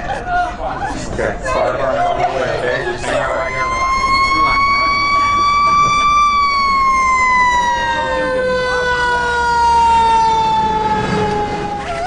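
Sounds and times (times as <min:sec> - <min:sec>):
low engine rumble: 0:00.0 - 0:12.0
fire engine siren: 0:03.1 - 0:12.0.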